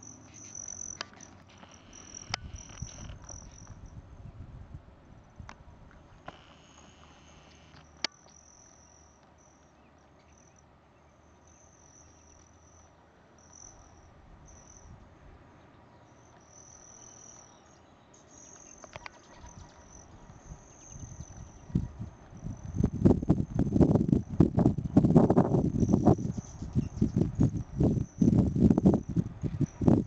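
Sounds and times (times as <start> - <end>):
hummingbird wings trilling: 0.0 - 3.8
sharp clicks: 0.4 - 3.8.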